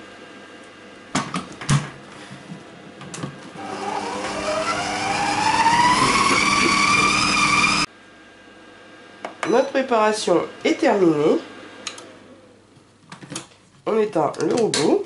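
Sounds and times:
mixing motor whine: 0:03.5 - 0:07.9.

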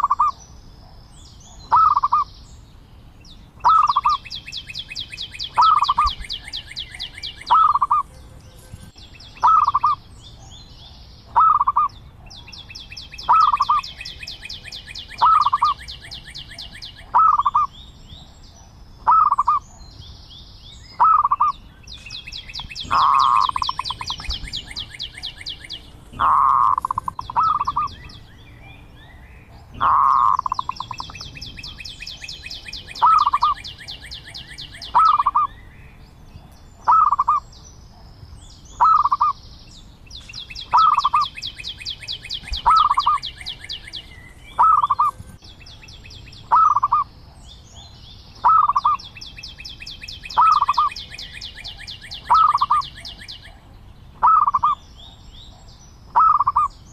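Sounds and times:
dove cooing: 0:00.0 - 0:00.4, 0:01.7 - 0:02.3, 0:03.6 - 0:04.2, 0:05.6 - 0:08.0, 0:09.4 - 0:10.0, 0:11.3 - 0:11.9, 0:13.2 - 0:13.9, 0:15.2 - 0:17.7, 0:19.0 - 0:19.6, 0:22.8 - 0:28.2, 0:29.5 - 0:35.5, 0:36.8 - 0:37.4, 0:38.8 - 0:39.4, 0:40.7 - 0:41.3, 0:42.4 - 0:44.0, 0:44.6 - 0:45.2, 0:46.5 - 0:47.1, 0:48.4 - 0:49.0, 0:50.4 - 0:51.0, 0:52.2 - 0:53.2, 0:54.2 - 0:54.8, 0:56.2 - 0:56.7.

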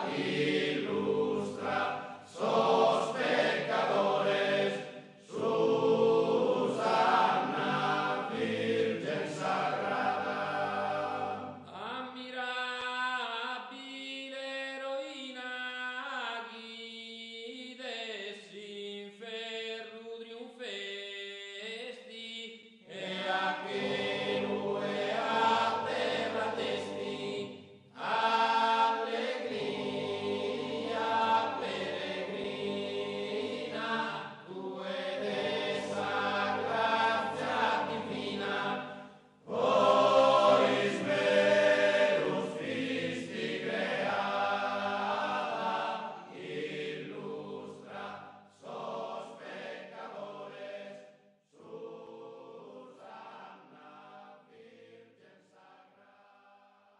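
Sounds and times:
choir singing: 0:00.0 - 0:11.8, 0:22.9 - 0:56.4.

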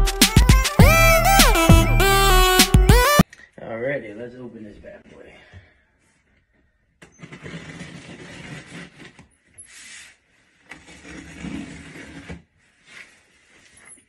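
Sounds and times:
cardboard box scraping: 0:07.1 - 0:13.9.

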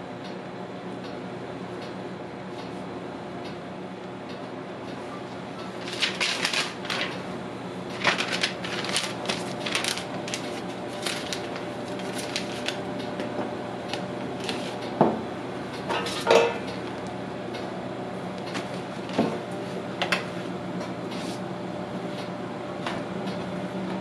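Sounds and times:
steady low hum: 0:00.0 - 0:24.0
gloves rustling and crinkling: 0:05.8 - 0:07.3, 0:07.9 - 0:12.9.

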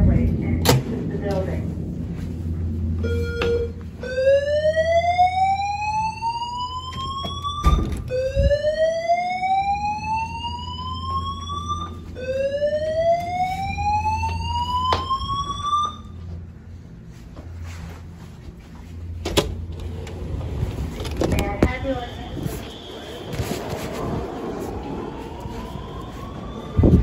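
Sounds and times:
fire alarm whoop tone: 0:03.0 - 0:16.2, 0:22.0 - 0:27.0.

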